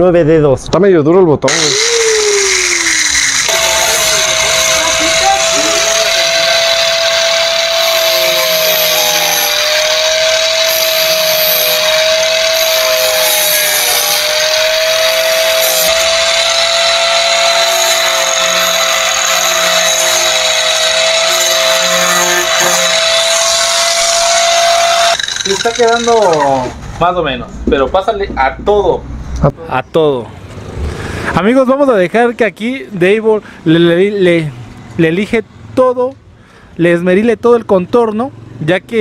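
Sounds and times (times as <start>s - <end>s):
angle grinder grinding: 1.5s - 26.8s.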